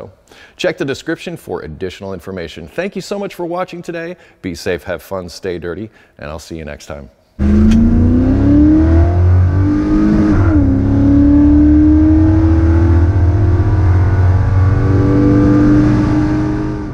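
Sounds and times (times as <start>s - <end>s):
car engine accelerating: 7.4s - 16.9s.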